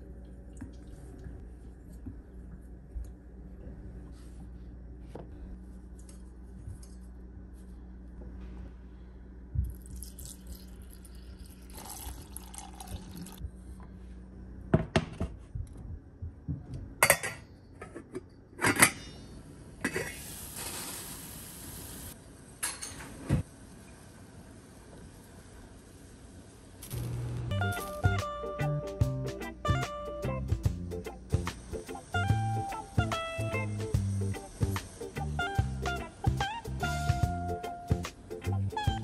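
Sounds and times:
low steady hum: 0.0 - 20.1, 22.1 - 39.0
steady hiss: 20.0 - 22.2, 31.0 - 38.7.

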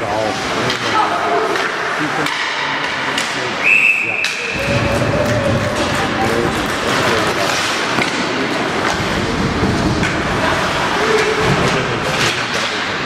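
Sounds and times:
crowd noise: 0.0 - 13.0
faint voices: 0.0 - 13.0
skates on ice: 4.7 - 13.0.

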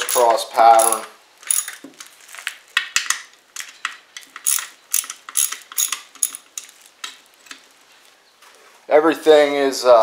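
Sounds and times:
ratchet wrench clicking: 0.0 - 1.8, 4.2 - 6.5.

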